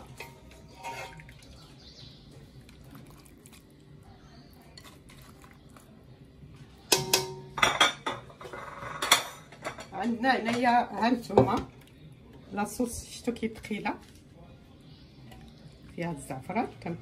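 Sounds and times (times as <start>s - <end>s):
food moved in a serving dish: 0.0s - 3.7s, 7.7s - 10.7s.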